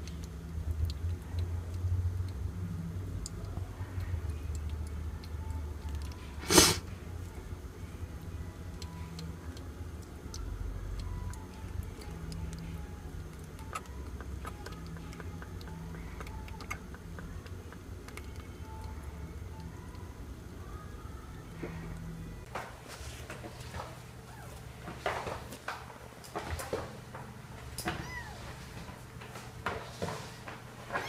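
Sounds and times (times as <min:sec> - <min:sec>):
kitten suckling from bottle: 0:08.7 - 0:19.0.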